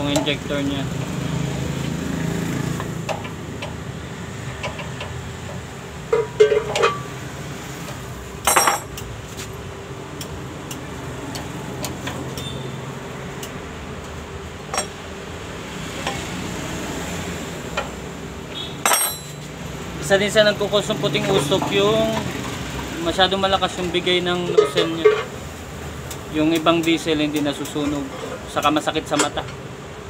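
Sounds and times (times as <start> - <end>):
metal tools clinking: 6.1 - 7.1, 8.4 - 9.0, 14.7 - 15.0, 18.8 - 19.5.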